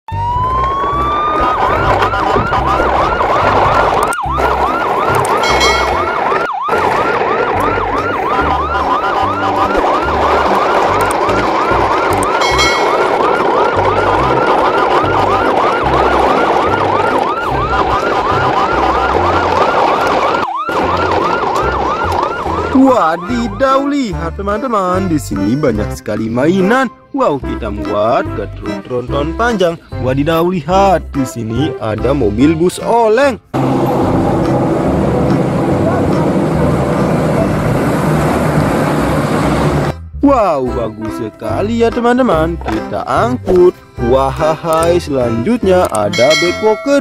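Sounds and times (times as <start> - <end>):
electronic yelp siren: 0.1 - 23.9
low pulsing beat: 5.2 - 6.3.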